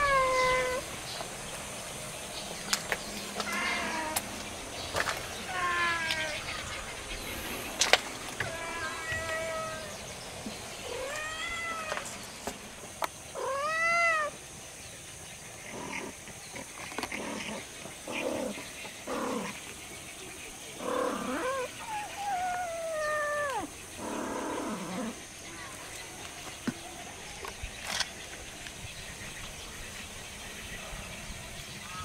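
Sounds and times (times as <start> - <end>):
cat meowing: 0.0 - 0.8, 3.5 - 4.2, 5.5 - 6.4, 8.4 - 10.0, 10.8 - 12.0, 13.4 - 14.4, 21.2 - 23.7.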